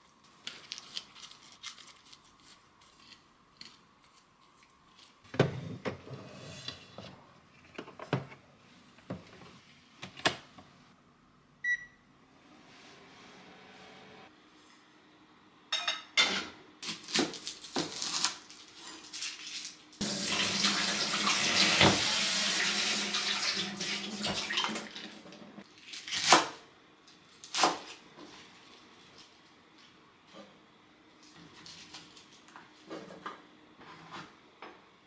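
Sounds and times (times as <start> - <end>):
kitchenware clattering: 15.7 - 16.6.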